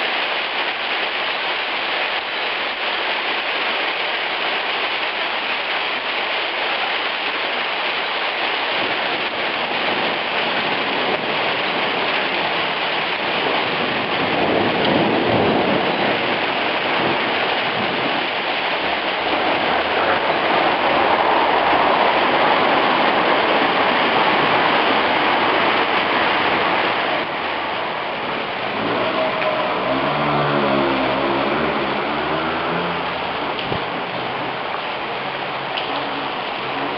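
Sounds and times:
car rumbling: 26.4 - 36.9.

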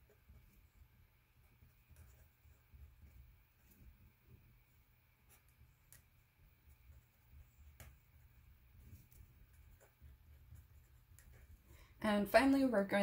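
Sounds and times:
pen scratching on paper: 1.7 - 3.8, 5.2 - 6.0, 6.6 - 11.7.

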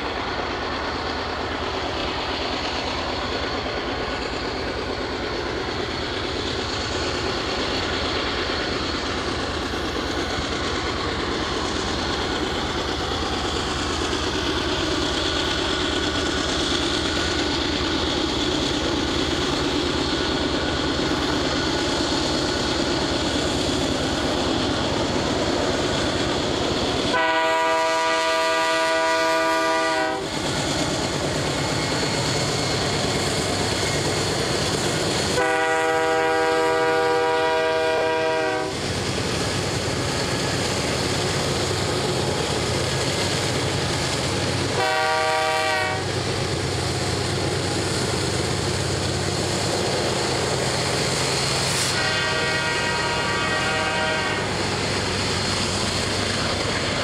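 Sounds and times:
locomotive engine drone: 0.0 - 57.0
rail noise: 0.0 - 57.0
locomotive air horn blast: 27.1 - 30.3, 35.4 - 38.8, 44.8 - 46.1, 51.8 - 54.6.

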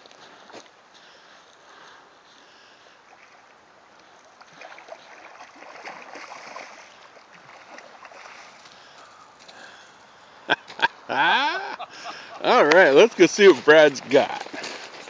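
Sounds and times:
river flowing: 2.1 - 15.0
fish splashing in shallow water: 3.0 - 9.6.

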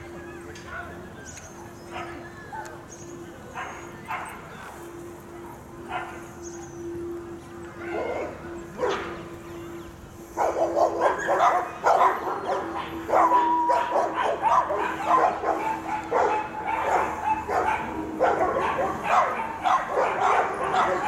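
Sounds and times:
dogs barking and yipping: 1.6 - 2.8, 3.5 - 4.5, 5.3 - 6.7, 7.8 - 9.2, 10.2 - 21.0.

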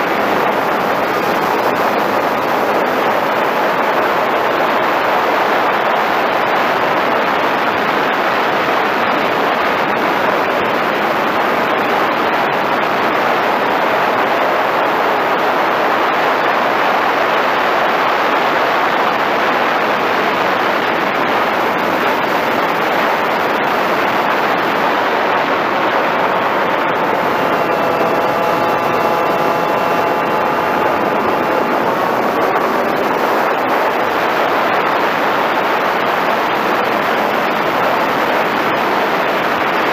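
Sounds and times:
faint motor whine: 0.0 - 39.9
model plane motor and propeller: 0.0 - 39.9
airflow rushing: 19.8 - 39.7.

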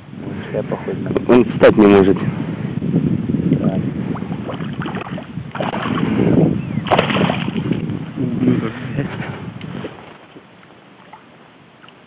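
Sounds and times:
wind buffeting microphone: 0.0 - 10.6
water lapping at bank: 3.9 - 8.0, 9.0 - 12.0.

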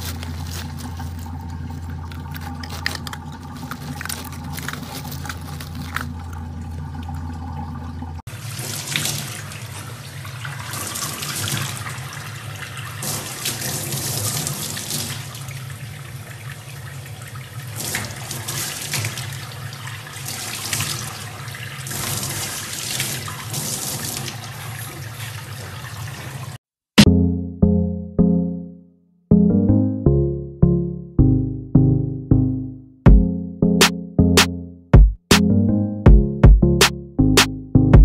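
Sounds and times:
tap water running into sink: 0.2 - 26.6.

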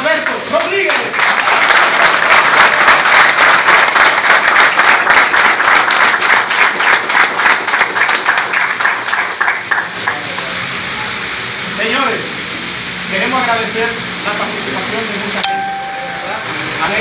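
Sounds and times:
audience applauding: 0.2 - 10.6.

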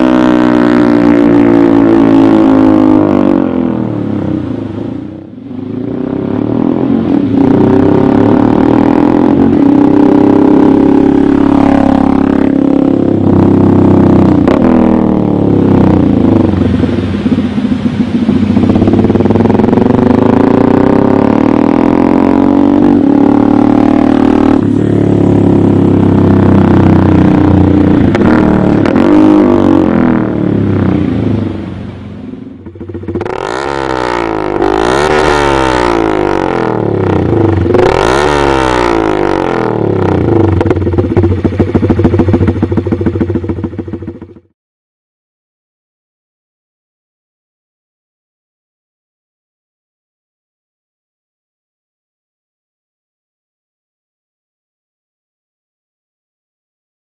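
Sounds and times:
motorcycle engine accelerating: 0.0 - 44.5.

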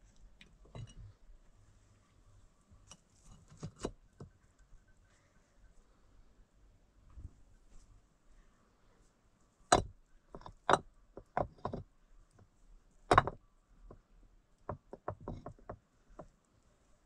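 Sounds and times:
sharp irregular knocks: 9.7 - 11.8, 13.1 - 14.0, 14.7 - 16.3.

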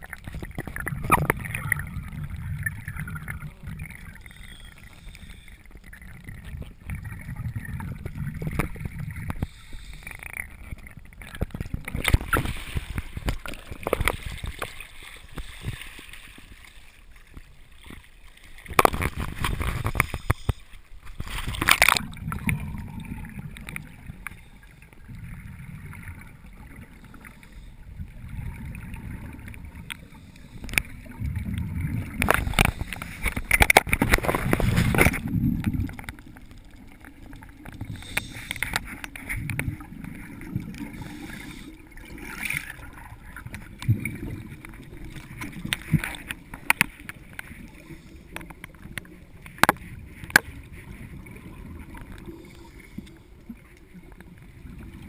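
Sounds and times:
exhaled bubbles: 0.0 - 16.1, 21.2 - 55.0
water sloshing over camera: 0.0 - 55.0
regulator breathing underwater: 3.0 - 6.0, 8.3 - 10.6, 29.9 - 31.2, 32.2 - 33.6, 37.8 - 39.1, 40.7 - 42.9, 52.1 - 53.4.

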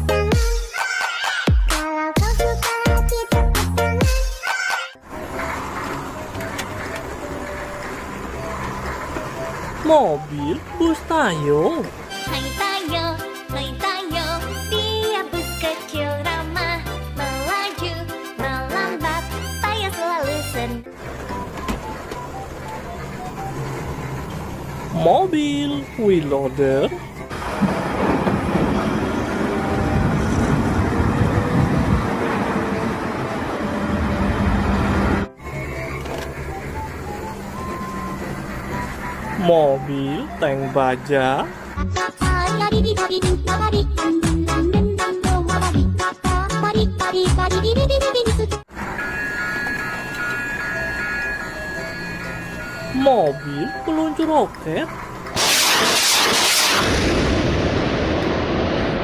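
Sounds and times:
wheel loader engine running: 5.0 - 45.9, 46.6 - 55.4
loud rocket hiss: 55.4 - 58.6.

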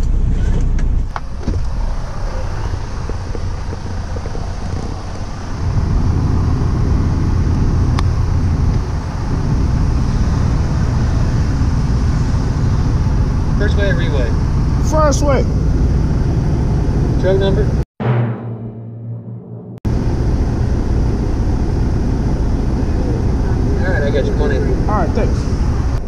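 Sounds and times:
diesel truck engine idling: 1.1 - 17.6
wind on microphone: 1.2 - 13.6.

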